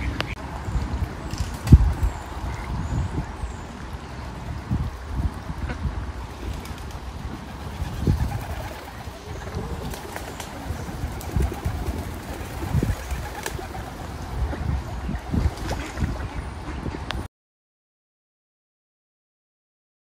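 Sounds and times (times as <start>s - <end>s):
low gusty rumbling: 0.0s - 17.3s
pigeons cooing: 7.5s - 16.0s.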